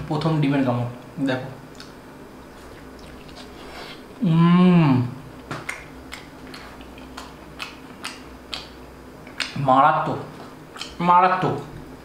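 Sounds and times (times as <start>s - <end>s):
wet mouth clicks while chewing: 1.7s - 2.0s, 5.4s - 9.6s, 10.4s - 11.0s
man humming: 4.2s - 5.2s.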